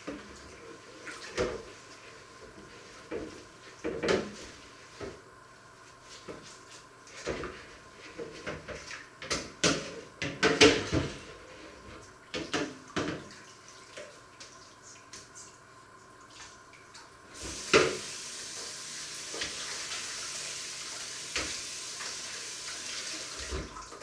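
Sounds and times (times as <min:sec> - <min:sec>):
dishes clattering in sink: 0:03.1 - 0:04.4, 0:08.2 - 0:11.3, 0:12.3 - 0:13.4.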